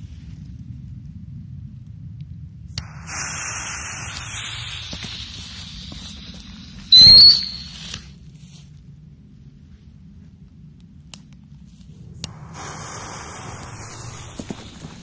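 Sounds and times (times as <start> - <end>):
firework burst with shrill whistle: 2.8 - 8.1, 12.3 - 15.0
firework hissing: 2.8 - 8.2, 12.0 - 15.0.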